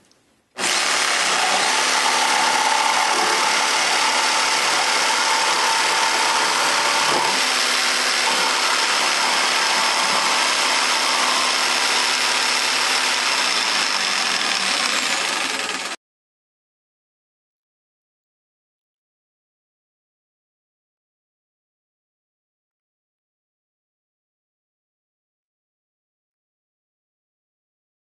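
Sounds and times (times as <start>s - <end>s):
jigsaw cutting wood: 0.6s - 16.0s.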